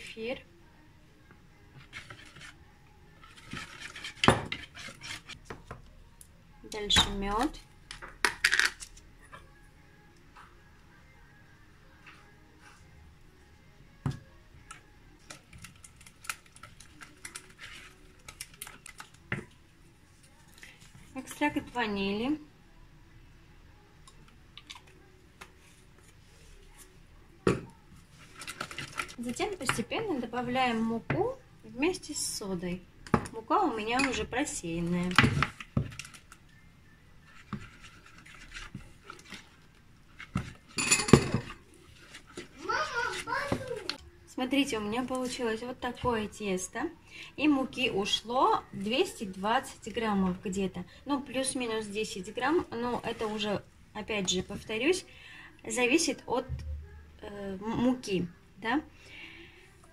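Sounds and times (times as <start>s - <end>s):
rustling scrape of flour whisked: 3.2s - 5.4s, 37.2s - 39.6s
whisk stirring batter in a bowl: 3.2s - 5.4s, 37.2s - 40.7s.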